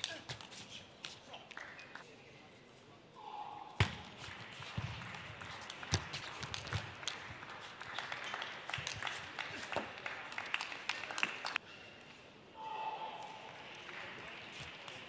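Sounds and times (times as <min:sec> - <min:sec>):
spectators applauding: 0:06.9 - 0:11.6, 0:13.5 - 0:15.0.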